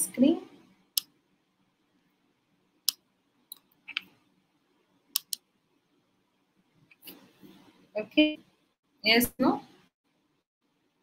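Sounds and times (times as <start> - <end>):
computer mouse clicks: 2.8 - 4.2, 5.2 - 5.4.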